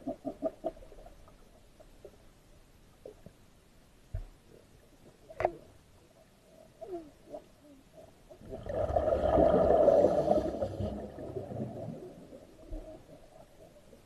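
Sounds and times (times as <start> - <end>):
underwater exhalation bubbles: 8.4 - 13.2.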